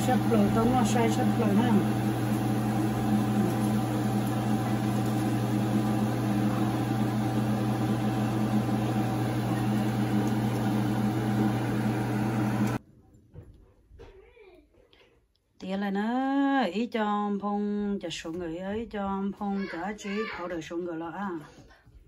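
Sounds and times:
kitchen exhaust fan humming: 0.0s - 12.8s
oil sizzling: 0.0s - 12.8s.

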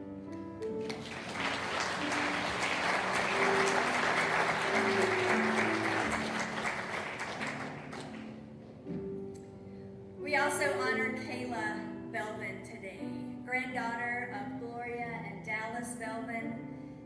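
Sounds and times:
soft instrumental music: 0.0s - 17.0s
congregation applauding: 0.6s - 8.6s.

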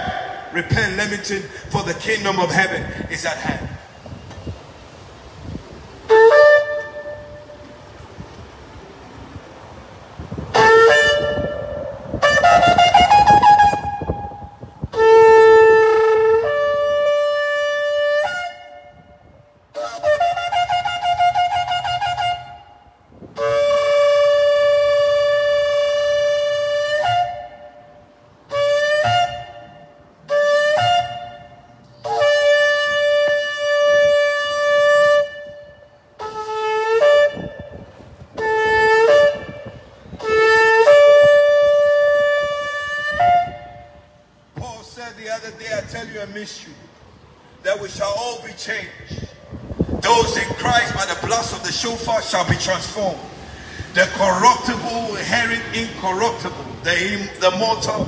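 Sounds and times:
shofar blasts: 6.0s - 7.9s, 10.3s - 44.3s.

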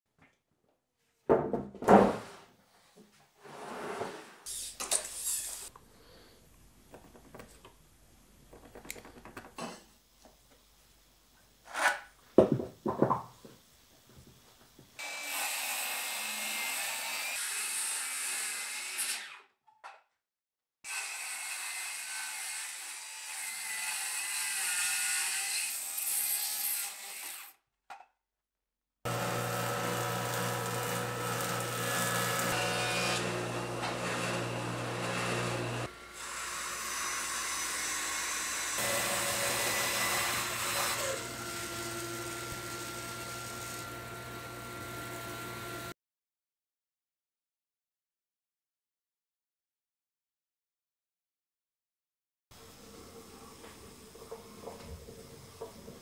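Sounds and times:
taps and scrapes: 6.9s - 7.8s, 8.5s - 10.6s
wooden boards knocking together: 8.5s - 9.6s, 12.4s - 13.6s
power tool running: 29.1s - 45.9s.

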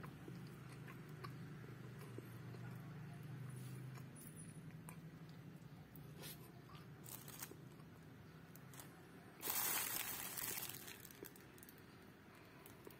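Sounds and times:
plastic bag crinkling: 7.0s - 7.6s, 8.6s - 11.8s.

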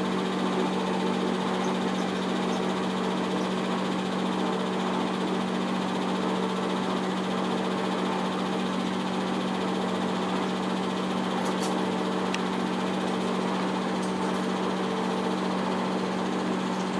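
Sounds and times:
film projector running: 0.0s - 16.9s.

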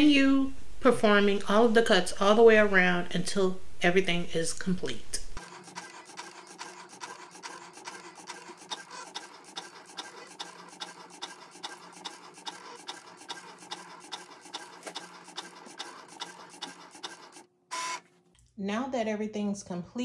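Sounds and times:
regular ticking: 5.4s - 17.5s
cutting machine motor whir: 5.4s - 18.1s.

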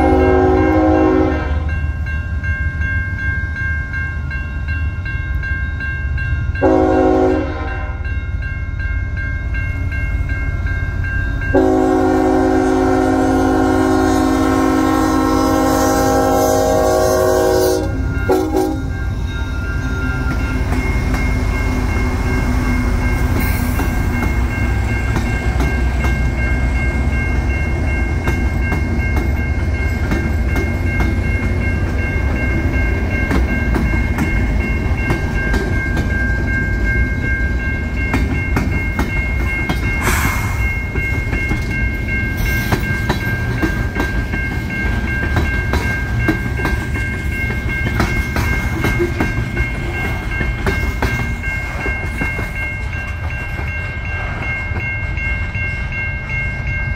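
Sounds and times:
electronic bell ringing: 17.8s - 43.4s.

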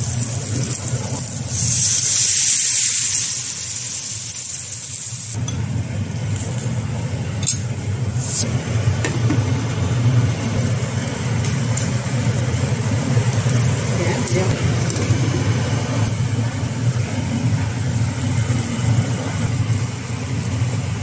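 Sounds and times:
sauce sizzling in a hot skillet: 0.0s - 5.4s
steady low hum: 5.2s - 21.0s.

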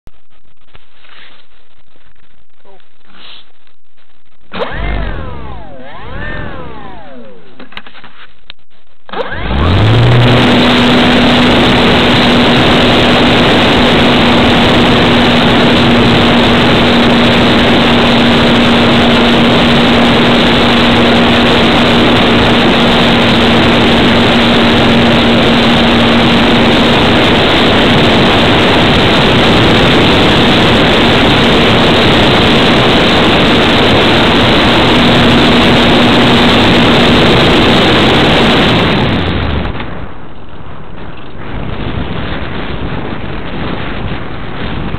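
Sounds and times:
electric motor and propeller running: 4.5s - 8.3s, 9.1s - 39.8s.

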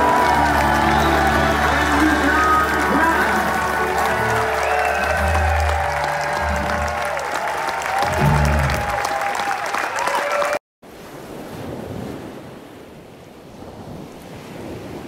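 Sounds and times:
live band music: 0.0s - 9.1s.

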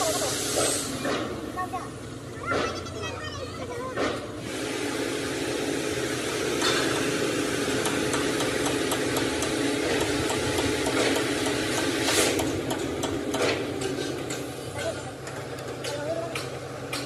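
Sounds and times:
engine running: 0.0s - 17.0s
sharp metallic knocks: 6.6s - 17.0s.

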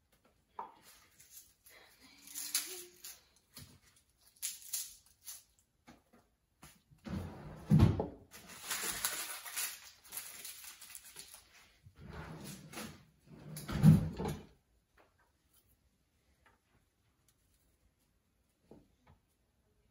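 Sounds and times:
garlic skins crackling: 8.4s - 11.6s.

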